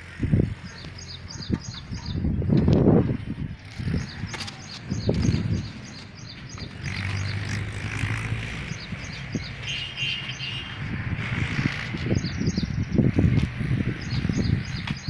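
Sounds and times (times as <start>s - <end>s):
low engine hum: 0.0s - 15.0s
small birds chirping: 0.4s - 2.5s, 3.5s - 15.0s.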